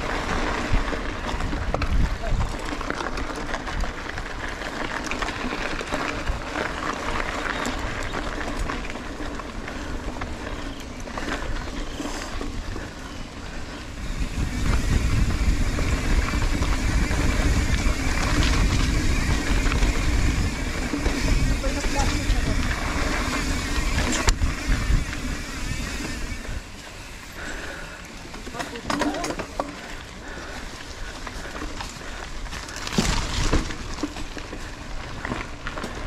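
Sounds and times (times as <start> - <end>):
wind rumbling on microphone: 0.0 - 27.7
bike rattling over bumps: 0.0 - 36.0
tyres crunching on gravel: 0.0 - 36.0.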